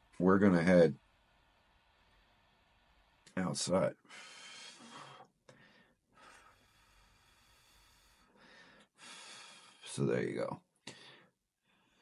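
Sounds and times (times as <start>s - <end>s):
breathy exhale: 4.1s - 9.9s.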